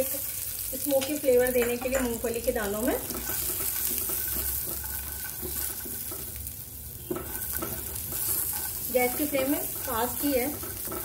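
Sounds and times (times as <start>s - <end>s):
peanuts sizzling in oil: 0.0s - 11.0s
spatula scraping a pan: 1.8s - 11.0s.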